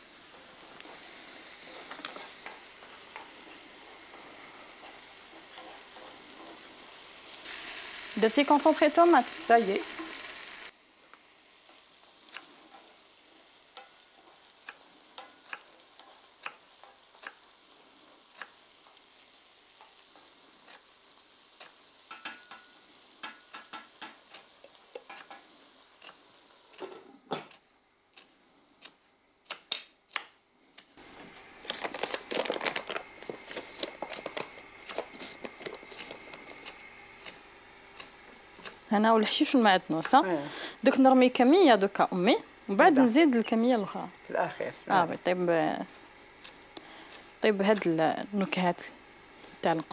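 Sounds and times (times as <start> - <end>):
vegetables sizzling in a pan: 0.0 - 49.9
stirring scrape: 1.6 - 7.0.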